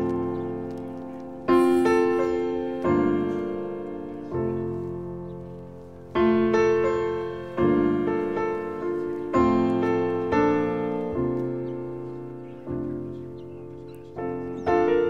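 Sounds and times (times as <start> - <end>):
slow solo piano chords: 0.0 - 15.0.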